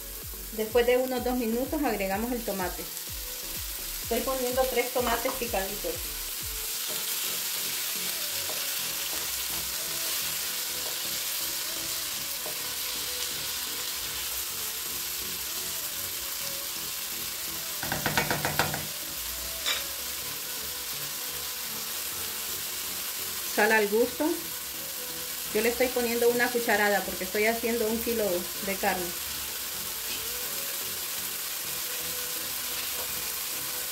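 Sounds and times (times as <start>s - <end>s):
vegetables sizzling in oil: 0.0s - 33.9s
knocks: 17.8s - 18.9s.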